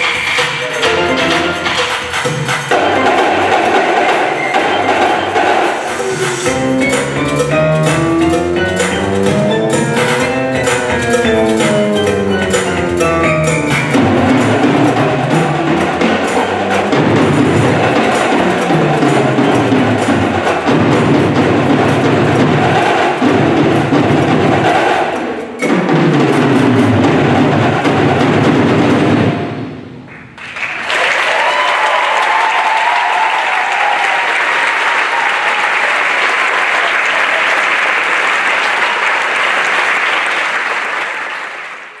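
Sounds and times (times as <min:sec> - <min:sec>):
recorded accompaniment music: 0:00.0 - 0:30.6
drum line playing: 0:00.0 - 0:41.2
audience applause: 0:02.7 - 0:06.7, 0:30.1 - 0:42.0.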